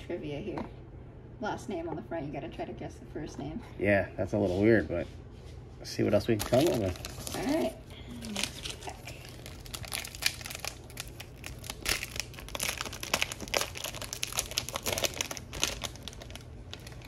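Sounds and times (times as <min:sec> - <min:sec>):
plastic wrapper crinkling: 0:06.2 - 0:17.0.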